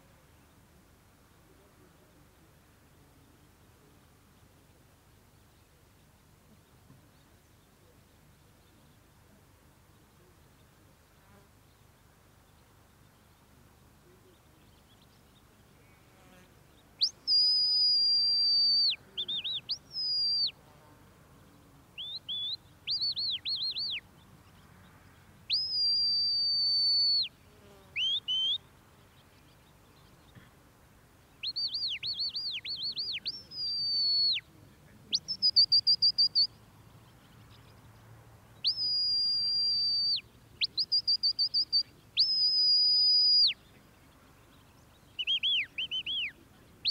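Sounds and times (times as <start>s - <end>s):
shepherd's whistle calls: 17.0s - 20.6s, 22.0s - 24.0s, 25.5s - 27.3s, 28.0s - 28.6s, 31.4s - 34.5s, 35.1s - 36.6s, 38.6s - 43.6s, 45.2s - 46.9s.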